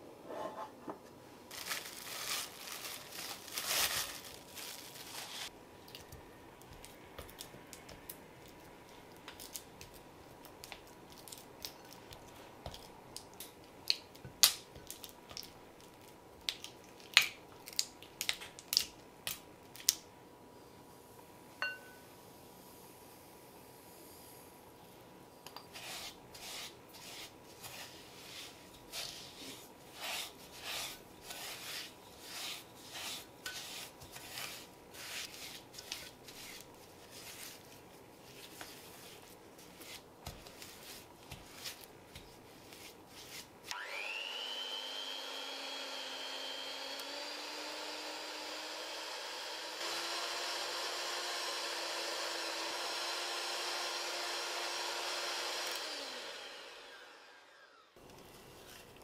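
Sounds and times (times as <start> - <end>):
spatula scraping glass bowl: 30.0 - 36.6
electric hand mixer whining: 43.7 - 58.0.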